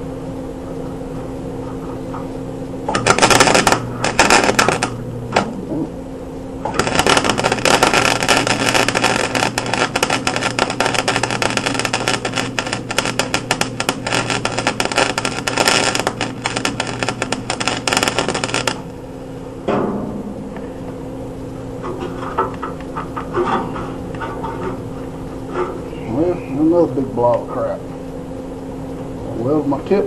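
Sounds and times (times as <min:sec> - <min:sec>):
hum: 0:00.0 - 0:30.0
arc welder crackling: 0:02.8 - 0:05.7, 0:06.5 - 0:19.2, 0:21.3 - 0:27.7.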